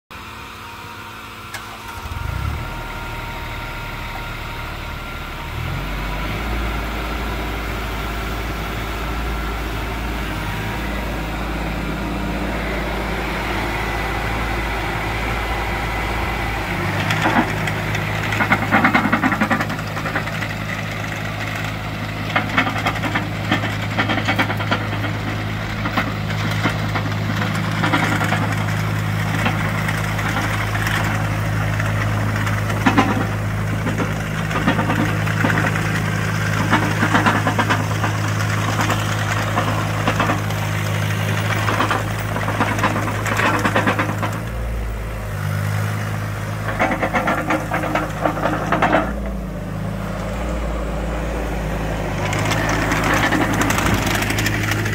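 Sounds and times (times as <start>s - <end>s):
diesel engine running: 0.0s - 54.9s
machine clanking and rattling: 16.1s - 44.7s, 46.6s - 49.4s, 52.2s - 54.9s.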